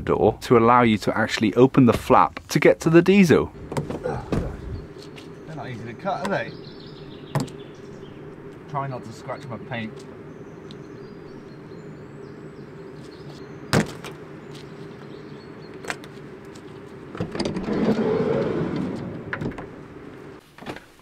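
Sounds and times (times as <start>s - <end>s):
steady low hum: 0.0s - 20.4s
sliding door rolling open: 17.2s - 19.8s.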